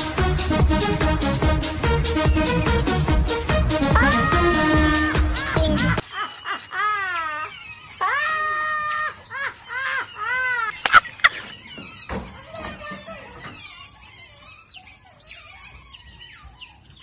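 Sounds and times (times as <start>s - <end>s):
otters chirping and squeaking: 0.0s - 17.0s
woman laughing shrilly: 3.9s - 11.5s.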